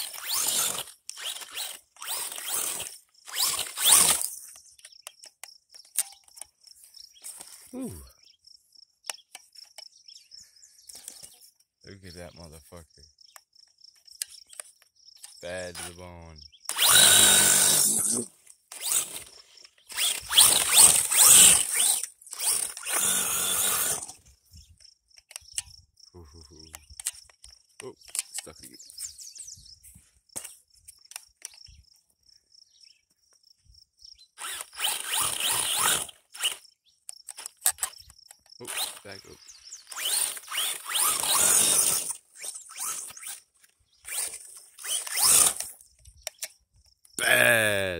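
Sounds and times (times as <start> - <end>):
electric motor revving with whine: 0.0 - 4.3, 16.7 - 24.2, 34.4 - 36.6, 39.8 - 43.4, 44.0 - 45.7.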